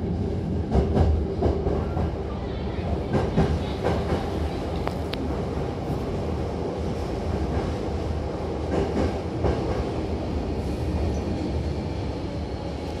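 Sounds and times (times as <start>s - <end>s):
train running low rumble: 0.0s - 13.0s.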